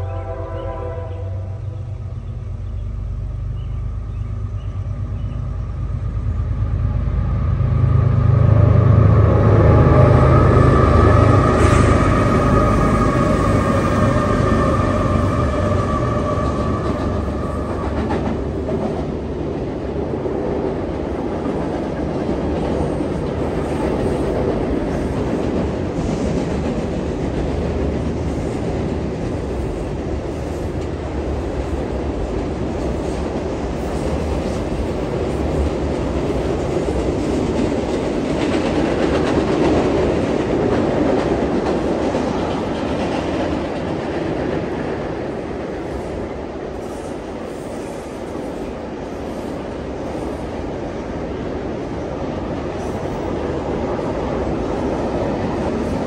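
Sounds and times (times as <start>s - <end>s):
locomotive whine: 0.0s - 19.9s
freight train wheels rumbling: 0.0s - 56.0s.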